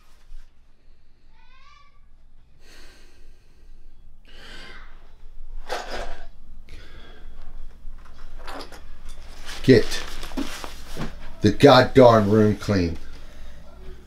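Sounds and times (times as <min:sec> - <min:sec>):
person sighing and huffing: 0:04.3 - 0:07.4.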